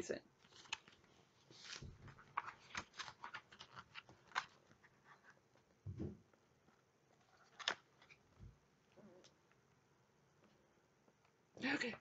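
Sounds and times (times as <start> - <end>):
paper clicks and rustles: 0.4 - 5.7, 7.1 - 8.2.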